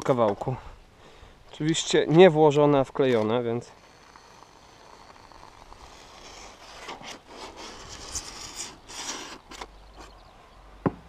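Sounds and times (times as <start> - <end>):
foam gun hissing and crackling: 3.8 - 9.6.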